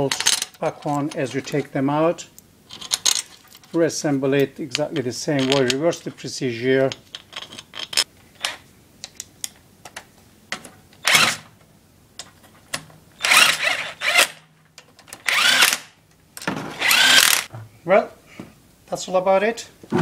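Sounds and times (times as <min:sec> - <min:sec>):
electric drill spinning: 0:13.2 - 0:14.4, 0:15.2 - 0:15.8, 0:16.8 - 0:17.5.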